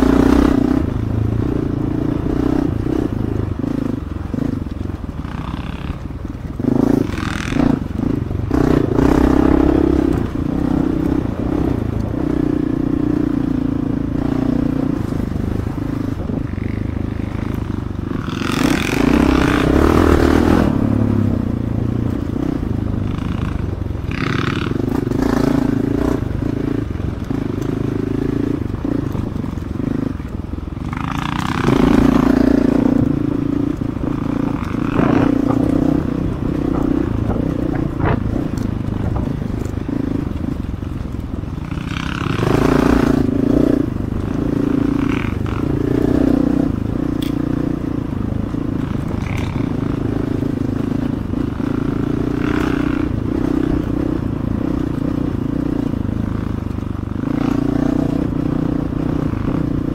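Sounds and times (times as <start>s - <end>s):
dirt bike engine revving: 0.0s - 56.1s
bike clattering on rough trail: 49.0s - 49.7s.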